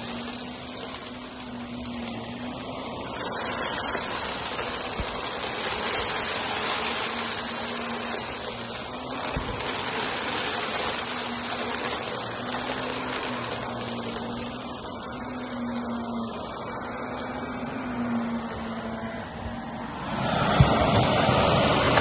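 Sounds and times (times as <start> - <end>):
debris crunching: 0.0 - 17.3
vacuum cleaner running: 0.0 - 22.0.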